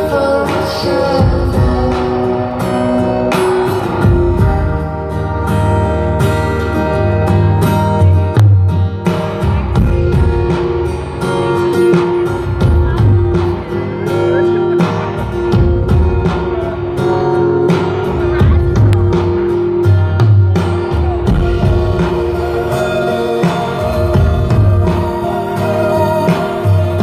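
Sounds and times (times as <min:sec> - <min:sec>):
deep bass line: 0:00.0 - 0:27.0.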